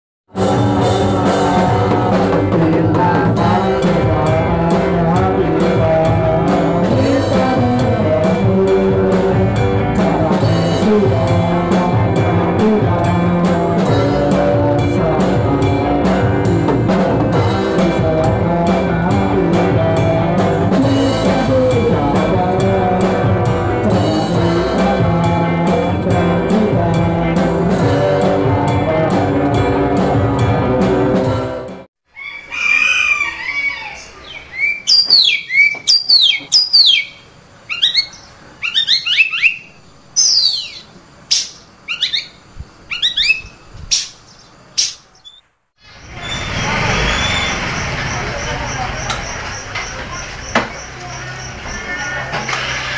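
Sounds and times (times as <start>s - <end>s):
music with drum beat: 0.4s - 31.8s
birds chirping: 32.1s - 52.9s.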